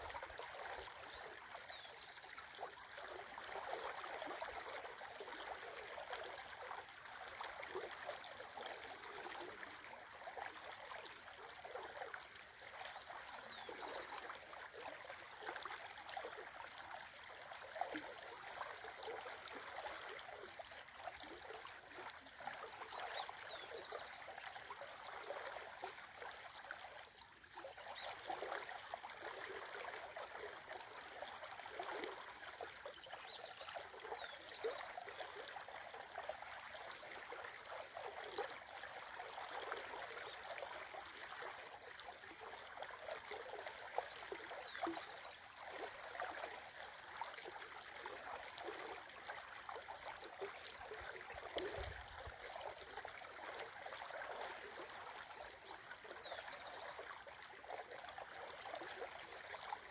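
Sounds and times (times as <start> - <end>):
shallow river babbling: 0.0 - 59.9.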